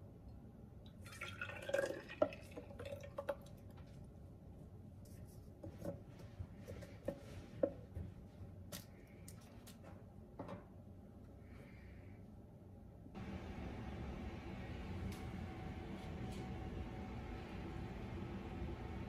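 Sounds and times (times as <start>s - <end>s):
thick drink pouring and gurgling: 1.0s - 3.6s.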